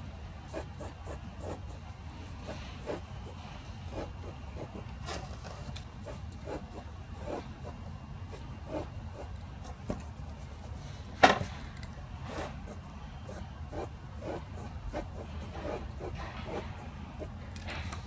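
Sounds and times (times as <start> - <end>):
pencil scratching on paper: 0.4 - 11.0, 12.2 - 17.4.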